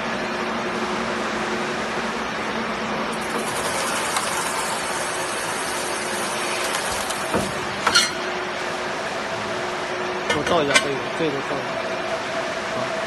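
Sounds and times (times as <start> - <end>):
machine humming: 1.7 - 10.2.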